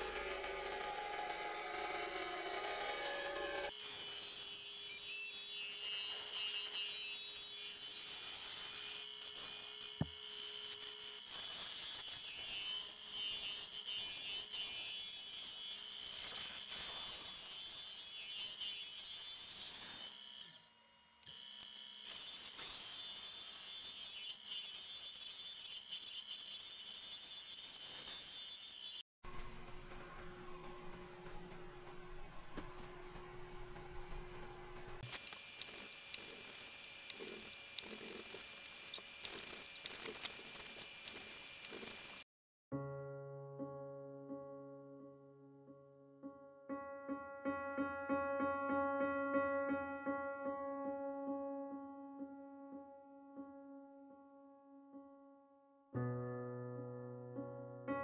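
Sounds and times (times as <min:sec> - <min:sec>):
turning tool scraping on lathe: 0:35.1 - 0:42.2.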